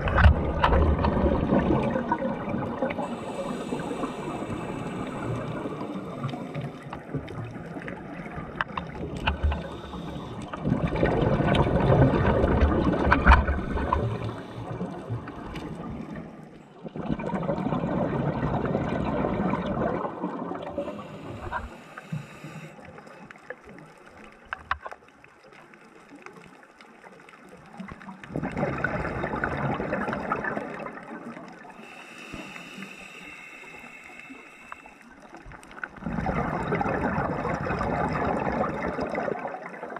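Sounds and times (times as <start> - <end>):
diver exhaling bubbles underwater: 0.0 - 22.4, 28.2 - 33.9, 35.8 - 39.9
quiet regulator hissing: 2.9 - 7.2, 7.9 - 10.6, 13.4 - 16.4, 20.8 - 23.5, 31.5 - 36.0.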